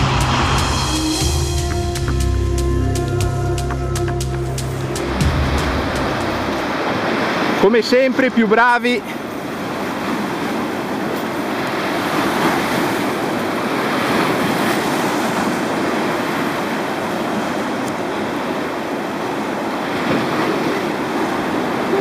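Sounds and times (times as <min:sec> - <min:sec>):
river water rushing: 0:00.0 - 0:22.0.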